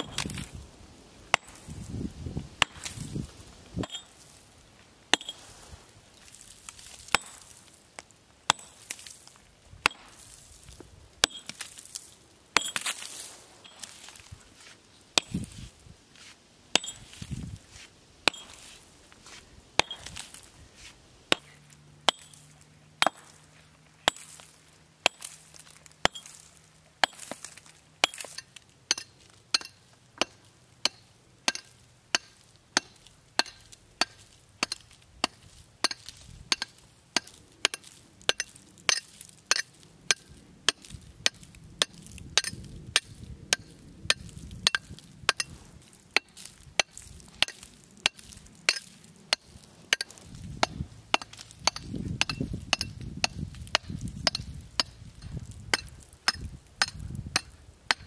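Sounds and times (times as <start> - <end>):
hammer striking stone: 3.8 - 4.1, 5.1 - 5.4, 7.1 - 7.4, 8.5 - 8.8, 11.2 - 11.6, 12.6 - 12.8, 16.8 - 17.0, 18.3 - 18.6, 19.8 - 20.2, 22.1 - 22.4, 23.0 - 23.4, 26.0 - 26.3, 28.0 - 45.5, 46.2 - 58.0.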